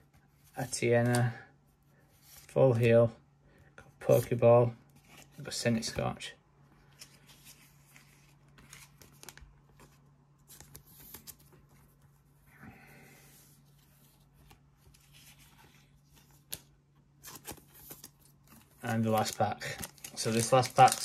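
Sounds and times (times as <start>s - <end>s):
cards shuffled by hand: 14.4s - 21.0s
wrapper crinkling: 18.9s - 21.0s.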